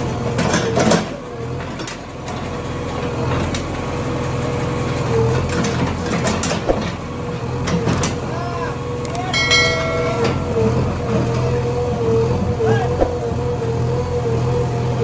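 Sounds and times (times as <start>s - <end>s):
diesel engine with whine: 0.0s - 15.0s.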